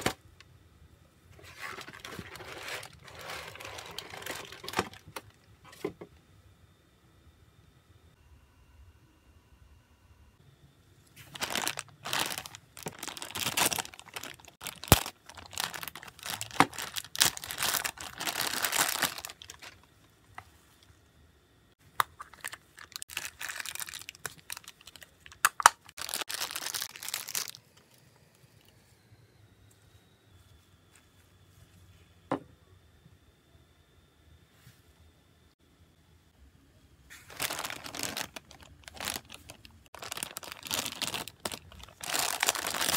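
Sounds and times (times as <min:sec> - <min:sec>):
plastic wrapping rustling: 0:01.4 - 0:05.8, 0:11.2 - 0:20.6, 0:22.2 - 0:27.8, 0:37.1 - 0:42.9.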